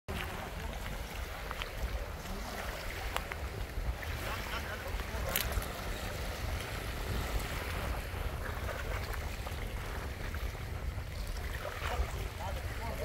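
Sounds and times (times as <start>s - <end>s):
water lapping at shore: 0.1s - 13.0s
wind buffeting microphone: 0.1s - 13.0s.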